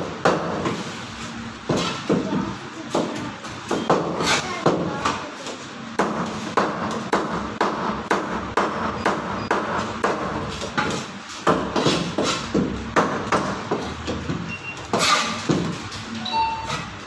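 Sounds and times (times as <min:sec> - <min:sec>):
cleaver chopping fish on wooden board: 0:06.0 - 0:10.4.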